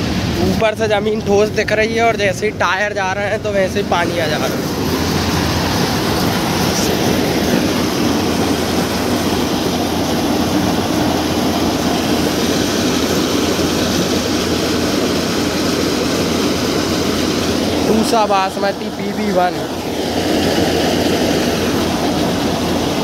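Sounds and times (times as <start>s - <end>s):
combine harvester running: 0.0s - 23.0s.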